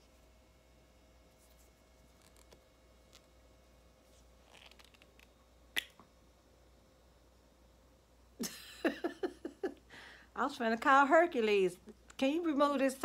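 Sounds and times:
plastic tube crinkle: 4.4s - 5.9s.

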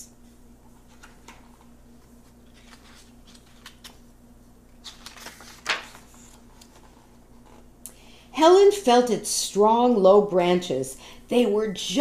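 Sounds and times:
book pages turning: 0.7s - 4.1s, 4.7s - 7.7s.

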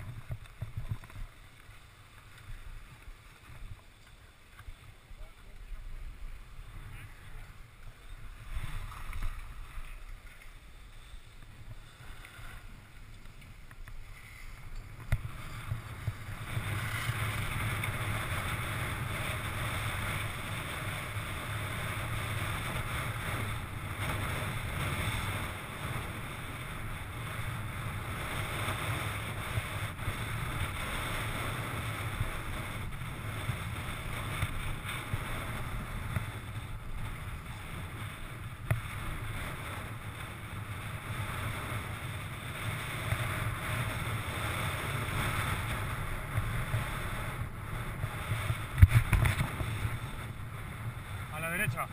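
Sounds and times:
skis scraping over packed snow: 0.0s - 51.9s
wind buffeting microphone: 4.6s - 51.9s.

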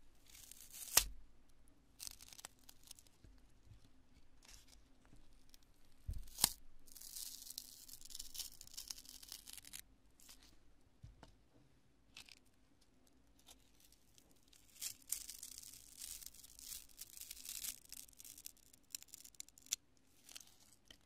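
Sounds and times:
sharp foam snaps: 0.4s - 1.2s, 6.0s - 9.8s.

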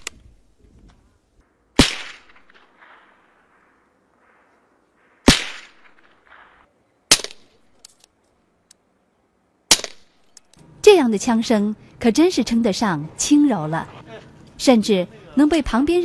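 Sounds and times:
silenced gunshots: 1.8s - 7.8s, 9.7s - 10.3s.

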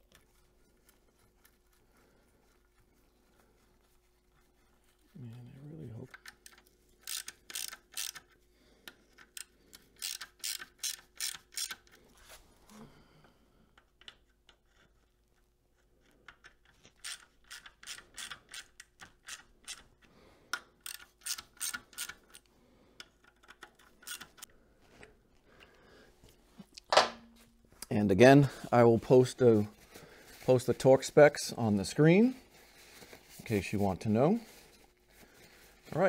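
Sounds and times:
socket ratchet clicking: 6.1s - 8.4s, 9.2s - 12.0s, 16.4s - 19.8s, 20.5s - 22.5s, 23.1s - 24.5s.

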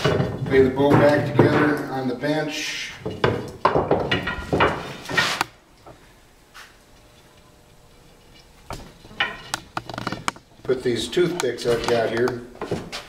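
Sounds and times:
wooden pieces knocking and clicking: 3.0s - 4.8s.

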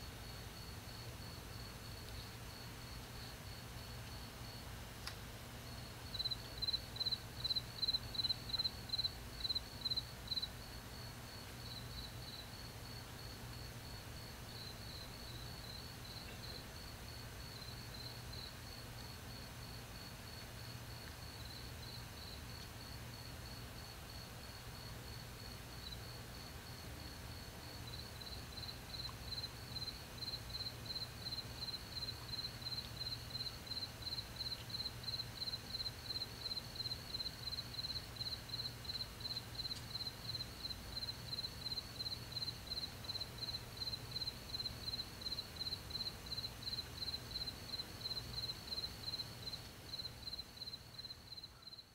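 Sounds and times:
cricket chirping: 0.0s - 4.7s, 5.7s - 51.9s.

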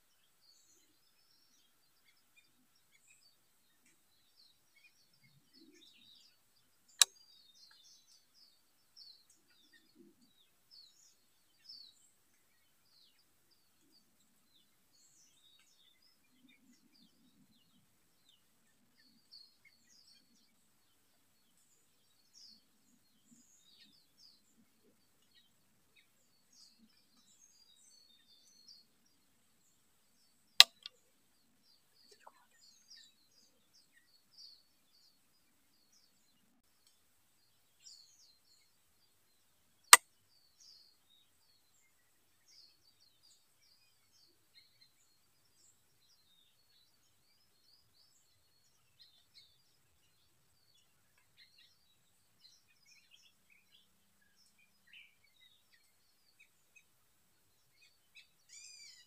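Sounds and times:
birds chirping: 0.0s - 39.2s, 40.6s - 59.0s.

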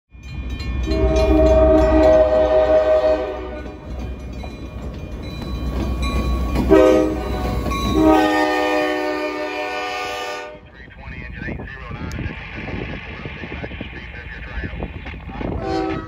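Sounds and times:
train rumble: 0.2s - 16.0s
locomotive air horn: 0.9s - 3.9s, 6.7s - 10.6s, 15.6s - 16.0s.

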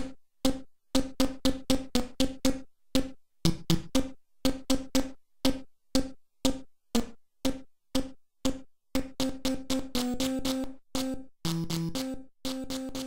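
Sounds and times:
chiptune synthesizer notes: 9.2s - 13.0s.

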